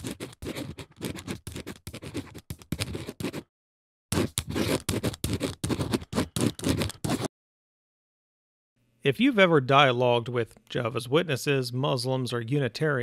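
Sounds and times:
pen scratching on paper: 0.0s - 3.5s, 4.1s - 7.3s.

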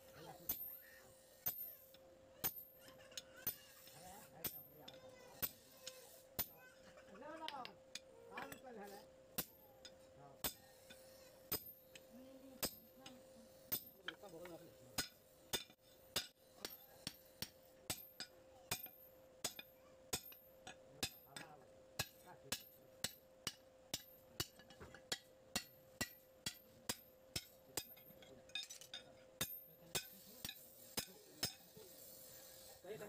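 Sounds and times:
hammer striking metal on anvil: 9.4s - 31.8s.

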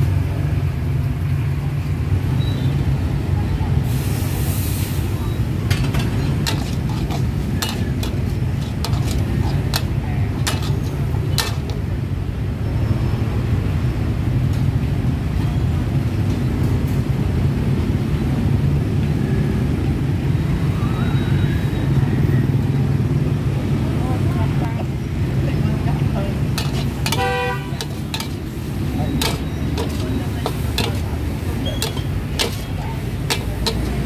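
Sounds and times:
gas burner rumbling: 2.9s - 20.3s, 23.4s - 34.0s
metal spatula scraping wok: 5.0s - 12.0s, 26.3s - 34.0s.

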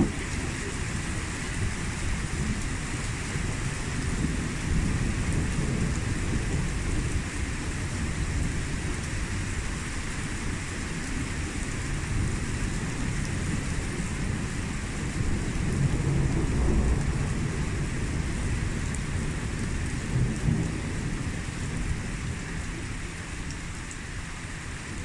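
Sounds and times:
low thunder rumbling: 0.0s - 23.4s
steady rain falling: 0.0s - 25.0s.

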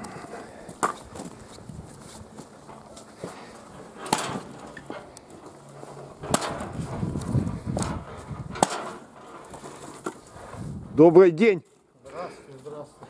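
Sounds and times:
logs rustling: 0.0s - 13.0s
log splitter blade splitting wood: 2.8s - 10.2s.

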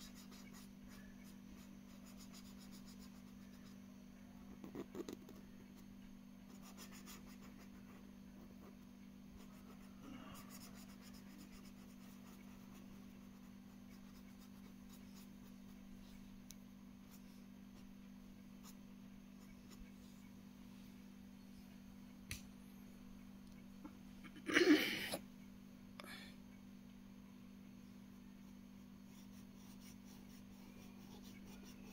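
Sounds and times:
pen scratching on paper: 0.0s - 3.8s, 6.5s - 8.8s, 9.4s - 15.8s, 29.1s - 31.9s
steady low hum: 0.0s - 31.9s.

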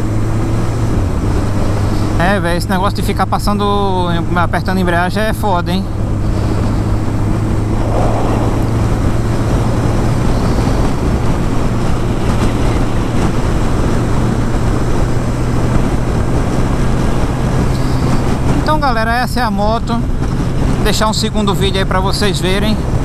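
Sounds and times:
wind rush on microphone: 5.9s - 20.8s.

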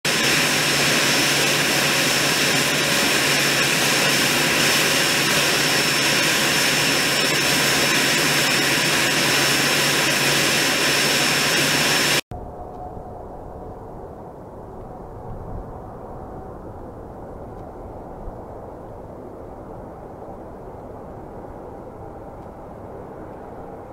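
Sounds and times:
machinery drone: 0.1s - 18.4s
high-pitched whine: 0.1s - 18.6s.

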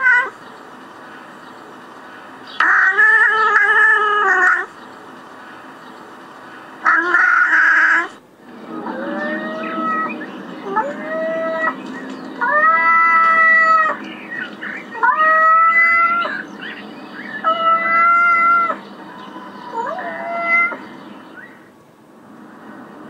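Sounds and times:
cat yowling: 0.0s - 0.4s, 6.8s - 11.8s, 12.4s - 14.0s, 14.9s - 16.4s, 17.4s - 20.9s.

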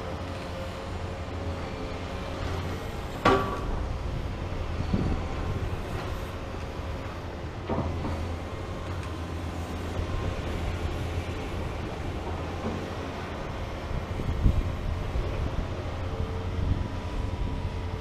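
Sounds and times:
excavator diesel engine hum: 0.0s - 18.0s.

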